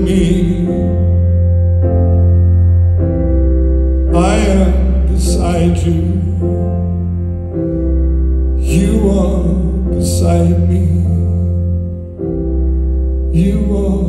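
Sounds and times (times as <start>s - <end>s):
man singing: 0.0s - 1.3s, 4.1s - 6.7s, 8.6s - 11.6s, 13.3s - 14.0s
electric bass notes: 0.0s - 14.0s
piano chords: 0.0s - 14.0s.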